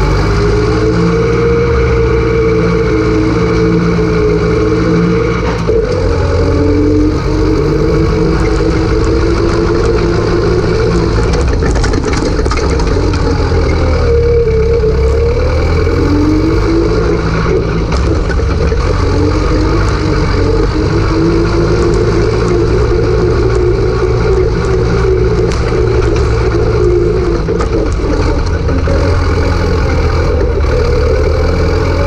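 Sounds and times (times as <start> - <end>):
tractor diesel engine running hard: 0.0 - 32.0.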